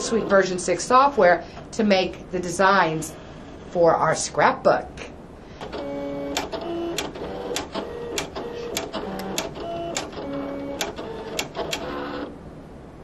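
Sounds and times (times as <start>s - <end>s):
sharp machine clicks: 5.7s - 12.1s.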